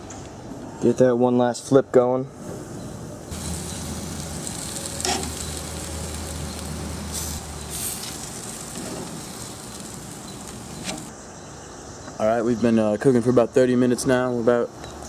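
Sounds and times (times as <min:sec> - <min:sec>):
chicken sizzling on a grill: 0:02.8 - 0:11.1
metal tongs clacking on grate: 0:05.0 - 0:05.5.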